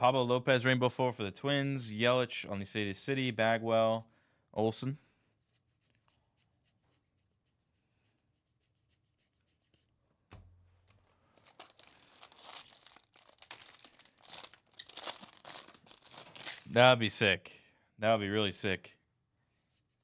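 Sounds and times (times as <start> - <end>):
foil wrapper crinkling and tearing: 10.9 - 16.8.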